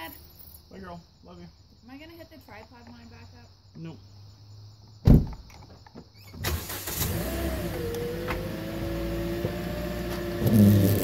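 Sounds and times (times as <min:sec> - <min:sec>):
car engine starting and idling: 0:06.4 - 0:11.0.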